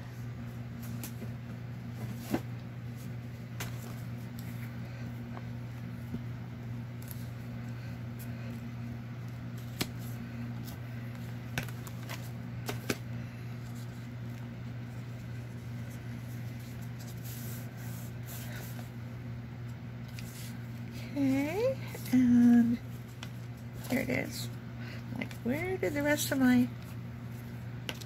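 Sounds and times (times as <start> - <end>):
paper pages handled: 1.9 - 5.1, 6.9 - 8.6, 9.2 - 18.9, 19.6 - 20.8.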